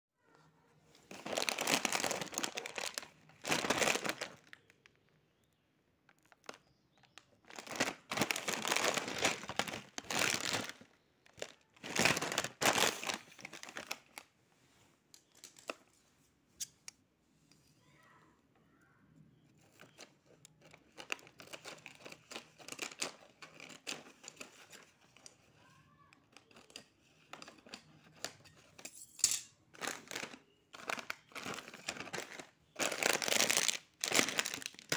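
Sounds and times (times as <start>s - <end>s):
chip packets crinkling: 1.0s - 5.2s, 6.1s - 14.3s, 19.6s - 25.5s, 29.7s - 34.9s.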